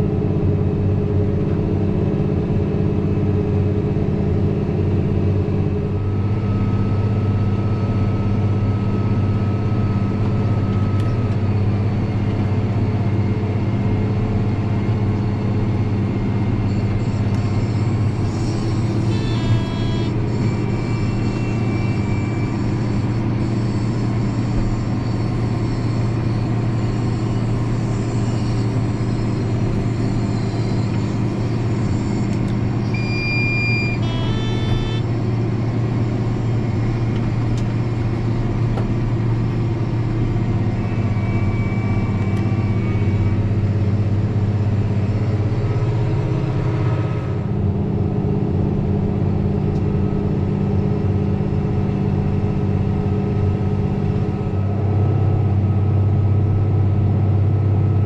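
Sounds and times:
tractor diesel engine running: 0:00.0 - 0:58.0
short electronic beeps: 0:16.7 - 0:23.7, 0:30.1 - 0:35.2.

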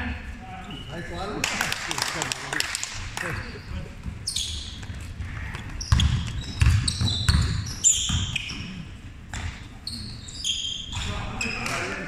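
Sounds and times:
shoes squeaking on floor: 0:03.4 - 0:12.0
basketball bouncing on wooden floor: 0:04.7 - 0:08.6.

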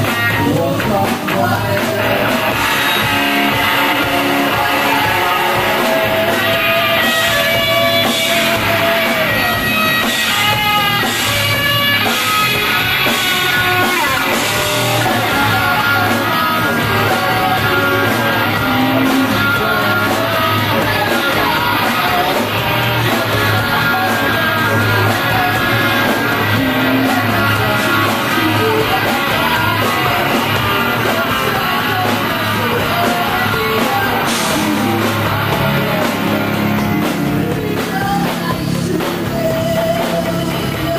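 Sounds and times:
drum kit: 0:00.0 - 0:40.9
electric guitar: 0:00.0 - 0:40.9
woman singing into a microphone: 0:37.3 - 0:40.9.

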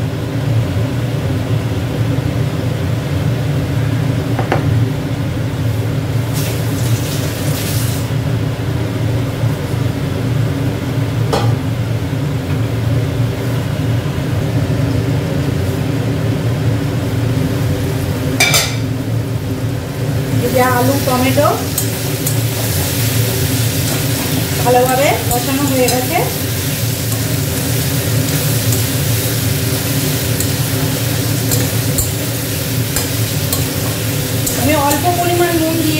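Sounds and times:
mechanical hum: 0:00.0 - 0:35.9
spatula clattering in a pan: 0:21.7 - 0:23.0, 0:23.9 - 0:35.4.

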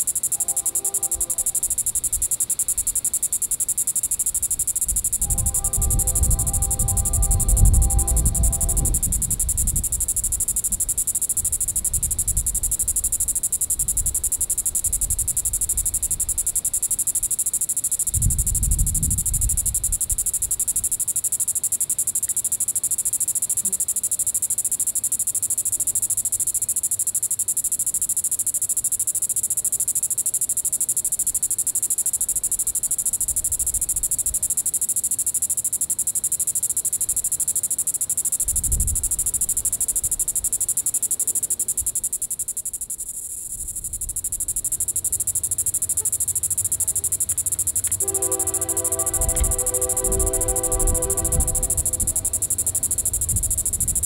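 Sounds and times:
cicada buzzing: 0:00.0 - 0:54.0.

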